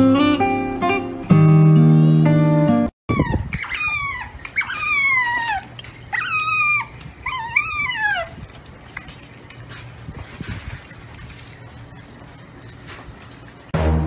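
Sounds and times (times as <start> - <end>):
acoustic guitar music: 0.0 - 2.9
otter squealing: 3.1 - 13.7.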